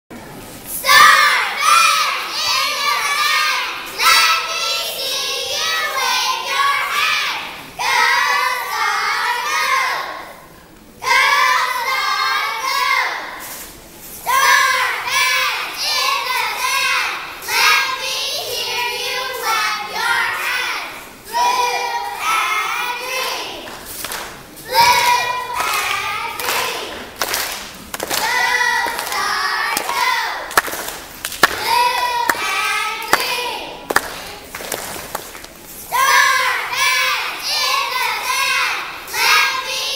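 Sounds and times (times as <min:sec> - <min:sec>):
children singing: 0:14.3 - 0:23.7, 0:24.7 - 0:27.1, 0:35.9 - 0:39.9.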